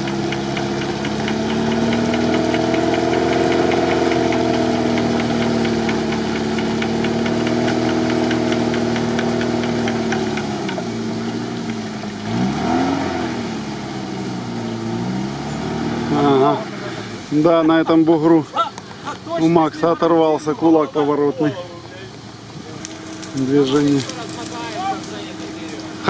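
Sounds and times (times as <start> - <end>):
light rapid ticking: 0.0 - 10.8
engine running under load: 0.0 - 26.0.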